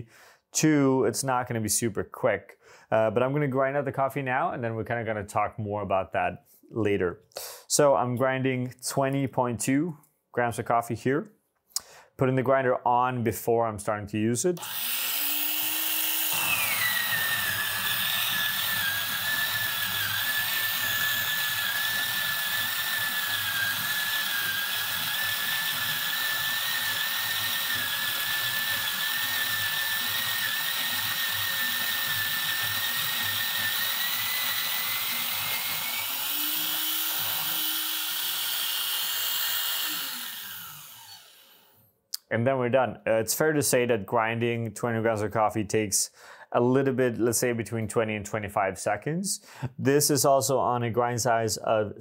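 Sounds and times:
coffee grinder motor whine: 14.6s - 41.8s.

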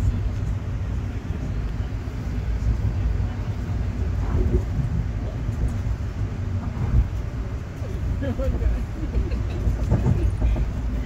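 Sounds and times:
train rumbling on track: 0.0s - 11.0s.

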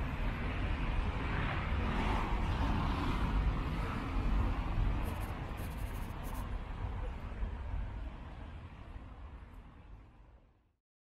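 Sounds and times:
cars passing on wet road: 0.0s - 6.2s.

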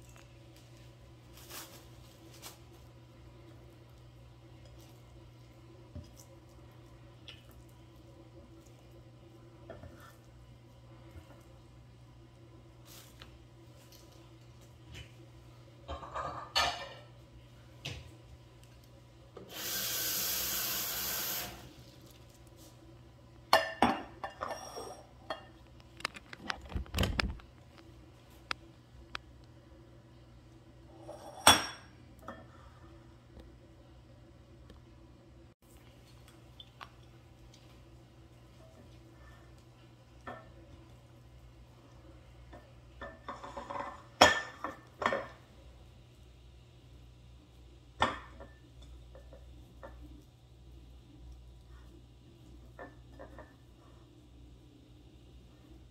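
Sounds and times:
scraping and rustling: 0.6s - 2.9s
glass bowls clinking: 23.6s - 25.5s.

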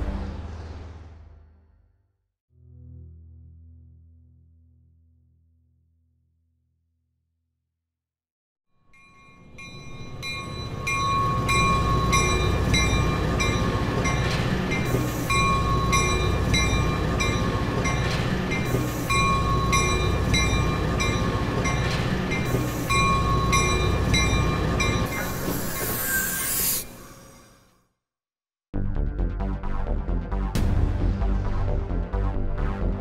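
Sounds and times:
train rumbling: 9.0s - 27.2s.

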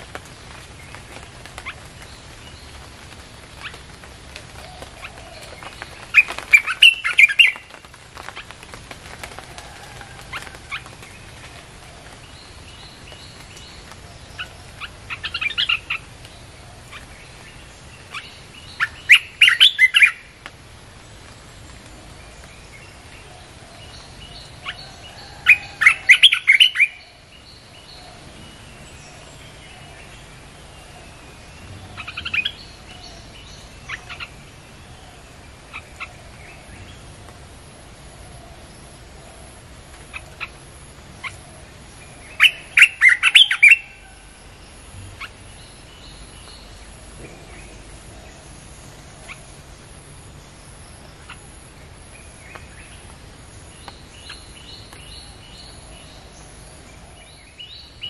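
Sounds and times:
bird chattering song: 4.6s - 7.8s, 12.1s - 20.4s, 22.4s - 37.1s, 40.1s - 44.2s.

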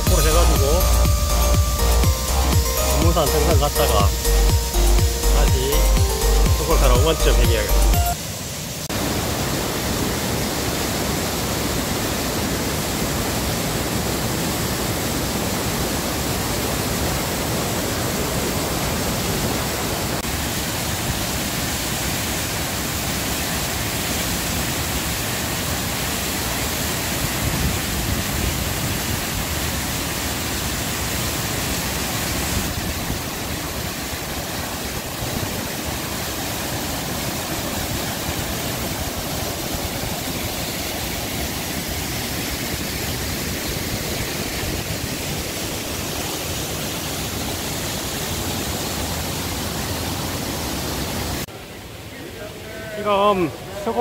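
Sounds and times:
rushing stream and waterfall: 0.0s - 54.0s.

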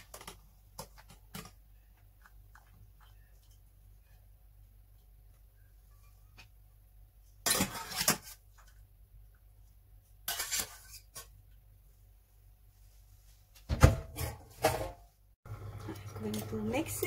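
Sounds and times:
kitchenware clatter: 7.4s - 8.4s, 10.2s - 11.3s, 13.8s - 15.1s.

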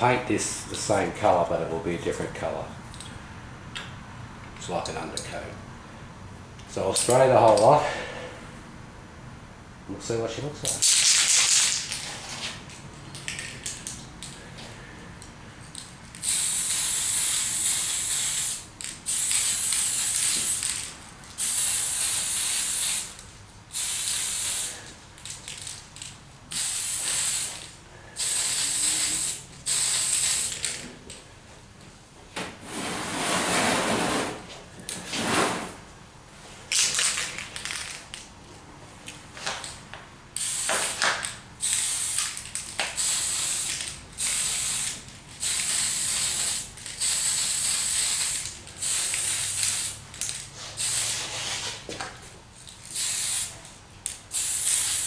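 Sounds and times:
aerosol spray can hissing: 16.2s - 20.6s, 21.4s - 24.8s, 26.5s - 27.6s, 28.2s - 30.6s, 43.0s - 50.0s, 52.9s - 53.5s, 54.3s - 55.0s.

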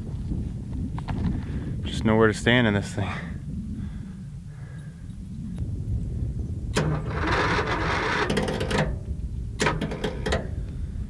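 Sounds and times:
generator starter cranking engine: 6.7s - 10.6s.

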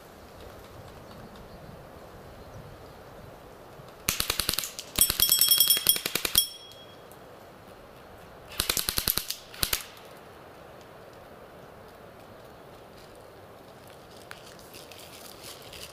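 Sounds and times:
airsoft rifle full-auto bursts: 4.1s - 6.5s, 8.5s - 10.0s.

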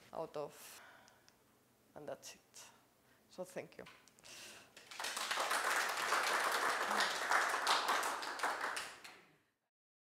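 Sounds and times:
audience applauding: 4.8s - 9.3s.

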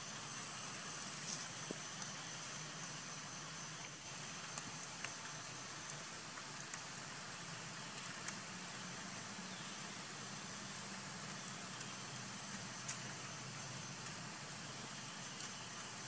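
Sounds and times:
even hiss: 0.0s - 16.0s
faint clicks: 3.8s - 6.9s, 10.9s - 13.3s.

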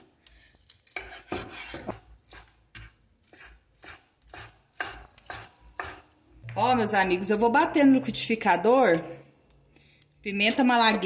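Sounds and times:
knife chopping on wooden board: 0.9s - 6.0s.

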